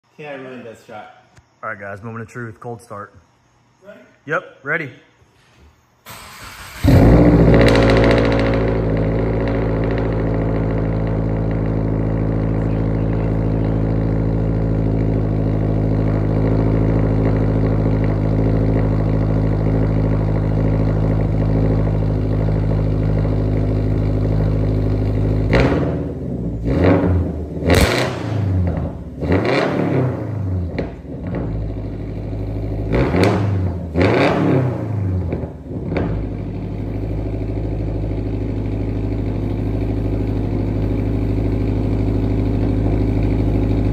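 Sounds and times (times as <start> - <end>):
car engine fast idle: 6.1 - 25.5
engine revving in quick blips: 6.1 - 36.4.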